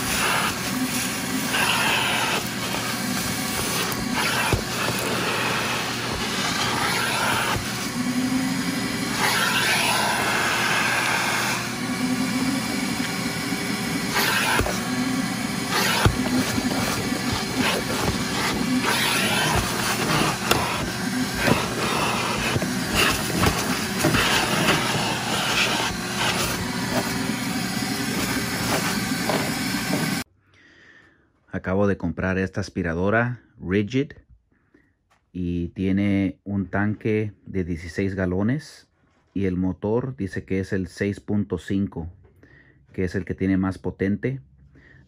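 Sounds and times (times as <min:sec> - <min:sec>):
shop vacuum running: 0:00.0 - 0:30.3.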